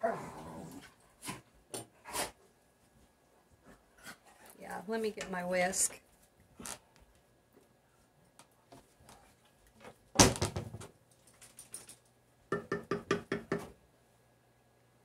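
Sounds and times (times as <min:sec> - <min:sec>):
spatula knocking on metal pot: 0:12.5 - 0:13.7.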